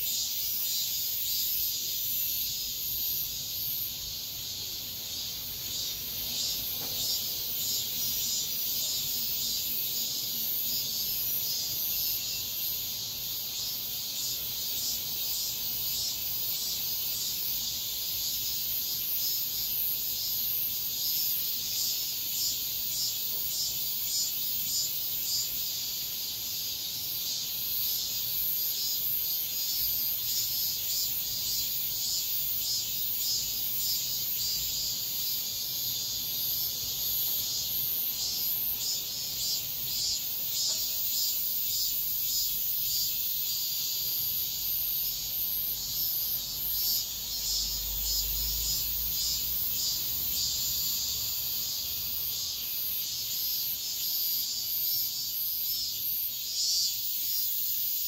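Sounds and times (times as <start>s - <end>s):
cicadas singing: 0.0s - 58.0s.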